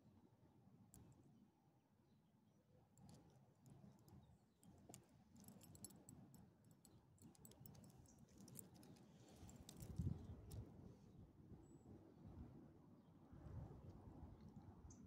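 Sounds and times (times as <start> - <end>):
dog collar tags jingling: 3.0 - 10.3.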